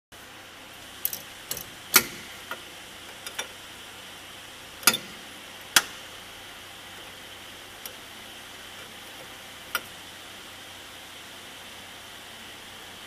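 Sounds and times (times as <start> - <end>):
spanner clinking on metal: 1.0 - 3.6, 4.8 - 5.9.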